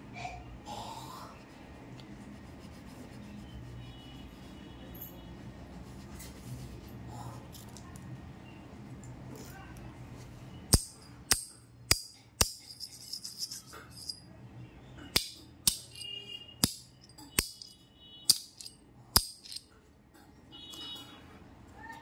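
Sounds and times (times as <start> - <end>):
magnet and coin clicking together: 10.7 - 14.2, 15.2 - 19.7.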